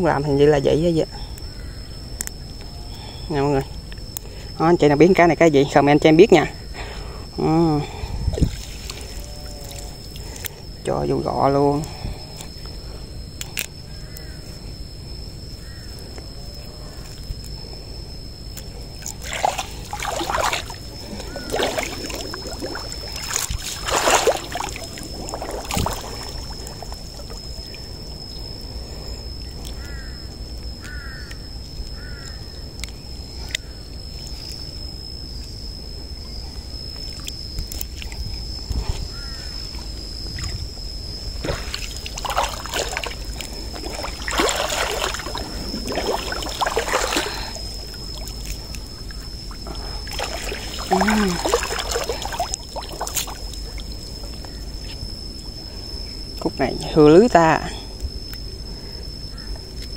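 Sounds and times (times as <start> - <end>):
water splashing and dripping: 18.6 - 27.9, 40.3 - 54.5.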